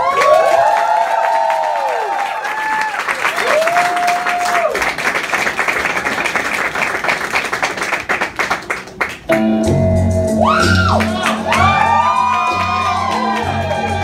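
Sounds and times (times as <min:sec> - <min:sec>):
crowd whooping: 0:00.0 - 0:04.9, 0:10.4 - 0:14.0
crowd clapping and cheering: 0:00.0 - 0:09.7, 0:10.4 - 0:14.0
music with low bass notes: 0:09.3 - 0:14.0.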